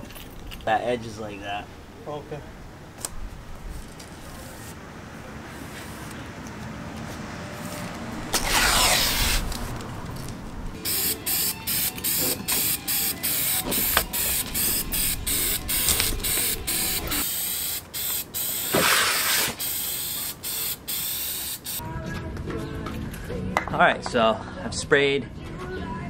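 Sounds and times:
tape pulled off roll: 7.8s - 10.4s, 18.7s - 19.6s
aerosol can spraying hisses: 10.9s - 21.8s.

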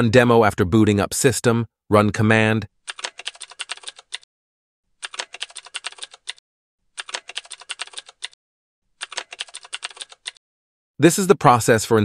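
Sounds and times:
computer keyboard typing: 2.9s - 4.3s, 5.0s - 6.4s, 7.0s - 8.4s, 9.0s - 10.4s.

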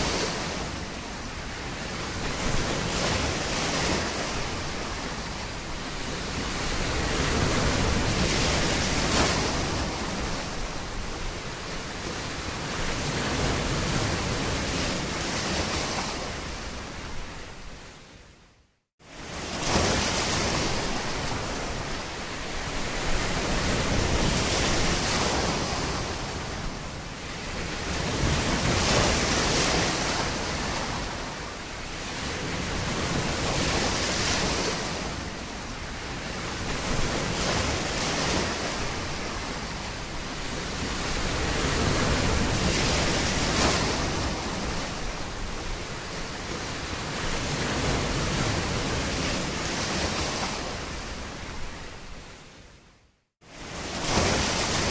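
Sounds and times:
sea surf washing in: 53.4s - 54.9s.

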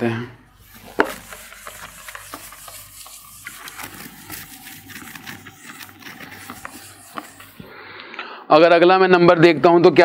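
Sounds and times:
eraser rubbing on whiteboard: 0.6s - 7.8s.

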